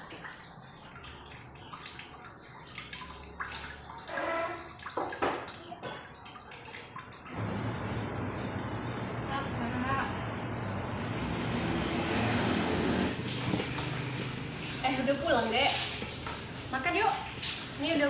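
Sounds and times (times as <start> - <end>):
water splashing and trickling: 0.0 - 7.9, 11.0 - 18.0.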